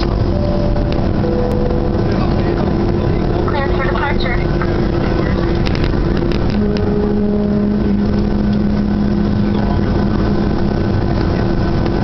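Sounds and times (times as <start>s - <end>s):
jet engines roaring in cabin: 0.0s - 12.0s
low hum: 0.0s - 12.0s.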